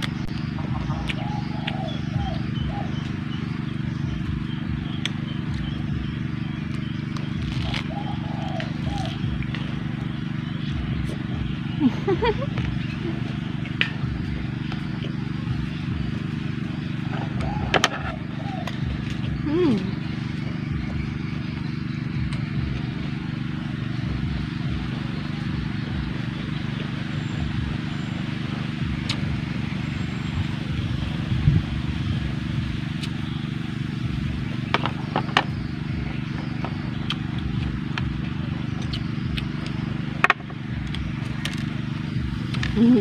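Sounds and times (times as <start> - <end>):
low mechanical hum: 0.0 - 43.0
chewing: 6.6 - 10.0, 37.0 - 38.1.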